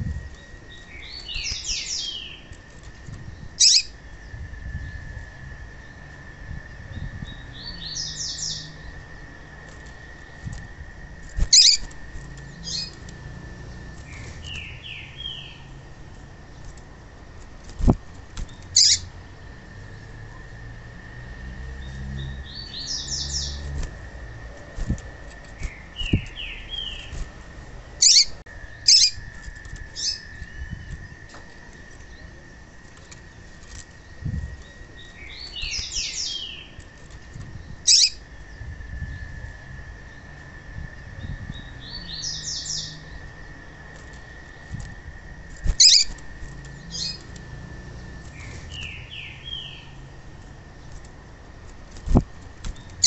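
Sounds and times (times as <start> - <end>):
wings fluttering: 0.0 - 4.8, 8.7 - 19.6, 22.7 - 39.4, 42.6 - 53.0
bird chip calls: 3.6 - 4.0, 11.4 - 13.0, 18.5 - 19.1, 28.0 - 29.3, 37.8 - 38.2, 45.7 - 47.4.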